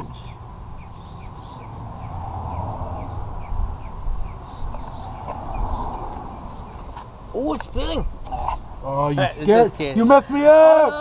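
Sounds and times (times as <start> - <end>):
bird chirping: 0.0 - 7.8.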